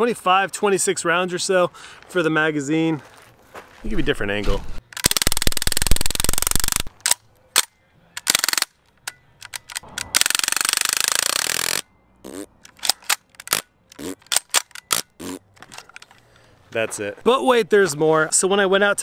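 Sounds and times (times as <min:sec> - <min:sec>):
sharp clicks: 0:04.9 - 0:16.2
bb pistol firing bursts: 0:05.0 - 0:08.7, 0:09.5 - 0:11.8.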